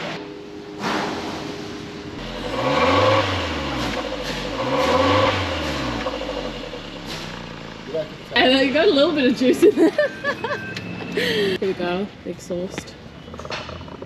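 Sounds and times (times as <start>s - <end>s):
car engine revving: 0.7s - 9.4s.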